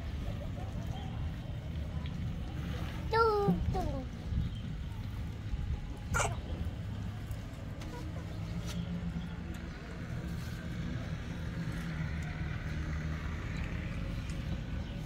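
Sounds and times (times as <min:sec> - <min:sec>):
engine humming: 0:00.0 - 0:15.0.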